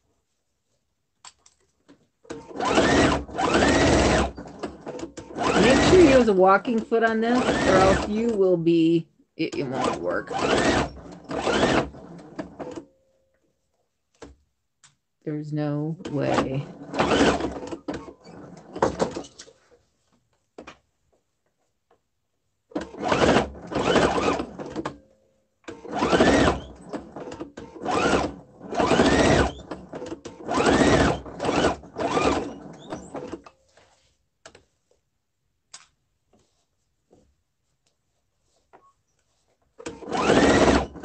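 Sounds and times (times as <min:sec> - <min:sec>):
sewing machine stitching: 0:02.2 - 0:08.6, 0:09.5 - 0:12.9, 0:16.0 - 0:19.5, 0:22.7 - 0:25.0, 0:25.7 - 0:33.5, 0:39.8 - 0:41.0.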